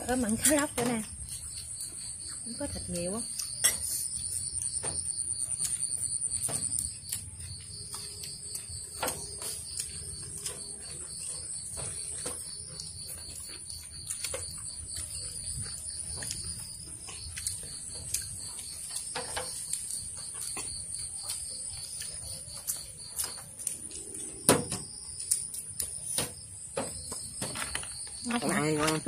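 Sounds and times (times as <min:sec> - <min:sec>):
insects chirping: 0:00.0 - 0:29.0.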